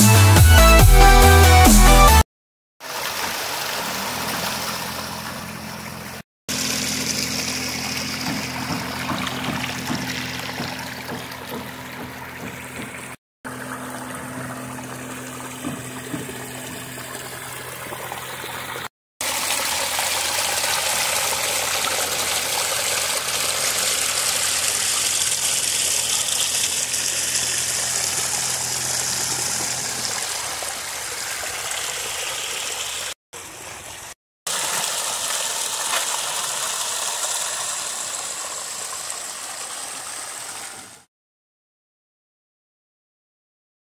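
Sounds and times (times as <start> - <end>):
water splashing down waterfall: 2.8 - 11.8, 18.6 - 41.1.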